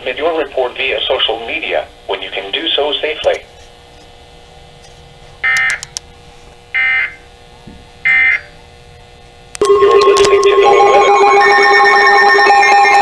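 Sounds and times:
loud steady alarm tone: 0:06.7 - 0:07.2, 0:08.1 - 0:08.5, 0:09.6 - 0:13.0.

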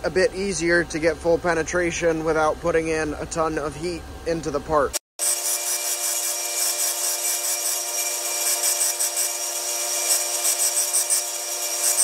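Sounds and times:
belt sander whine: 0:05.2 - 0:12.0
metal tube grinding hiss: 0:05.2 - 0:12.0.

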